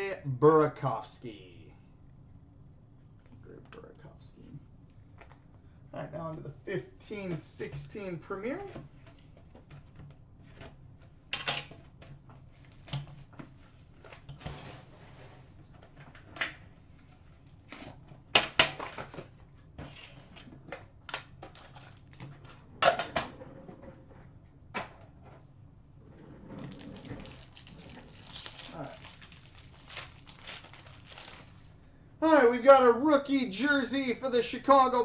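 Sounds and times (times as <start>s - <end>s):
cardboard and plastic wrapping rustles: 12.3s - 16.2s, 21.4s - 22.4s, 26.6s - 31.8s.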